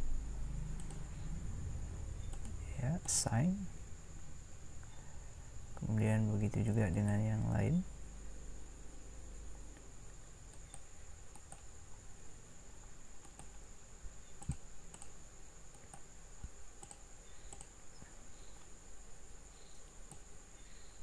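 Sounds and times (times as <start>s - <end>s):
faint high-pitched whine: 0.0s - 21.0s
computer mouse and keyboard clicks: 0.8s - 1.1s, 2.2s - 3.2s, 10.5s - 11.7s, 13.2s - 13.6s, 14.4s - 17.8s.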